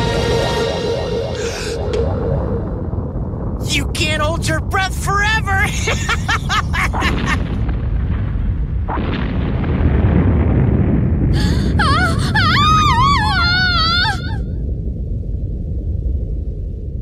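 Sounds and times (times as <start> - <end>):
low loud rushing smoke: 0.0 - 3.7.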